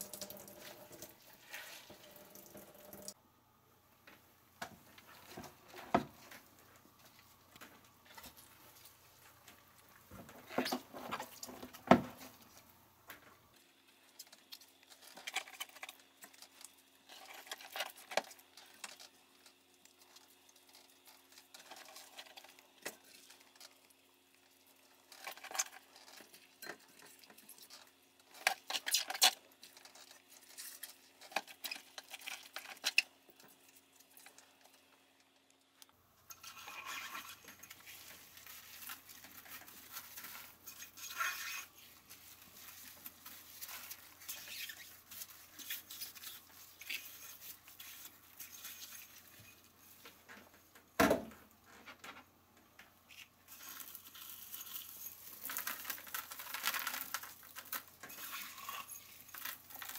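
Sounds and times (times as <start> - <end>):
faint steady hum: 0.0 - 59.9
cabbage leaves rustling: 37.0 - 50.0, 53.5 - 59.9.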